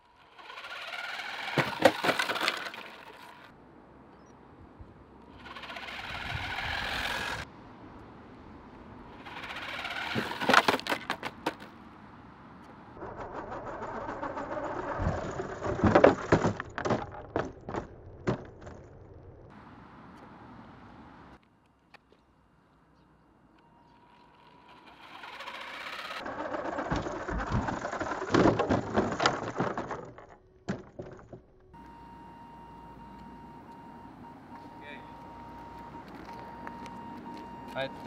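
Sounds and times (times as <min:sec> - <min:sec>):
toy car crashing onto ramp: 0:00.4 - 0:03.4, 0:09.4 - 0:11.7, 0:25.0 - 0:31.4
electric motor whining: 0:05.3 - 0:07.4.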